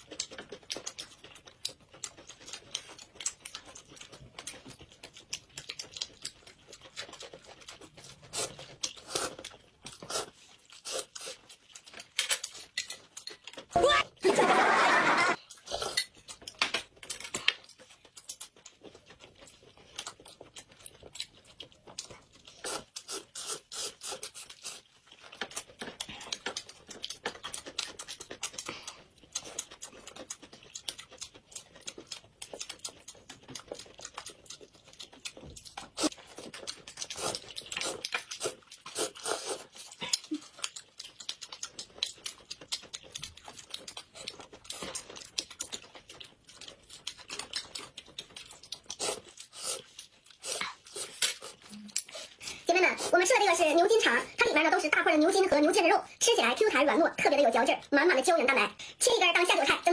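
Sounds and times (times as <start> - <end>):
wet chewing and smacking: 0.0 - 14.1, 15.3 - 59.9
slurping noodles: 8.3 - 11.4, 22.5 - 24.9, 37.0 - 40.0, 48.8 - 53.3.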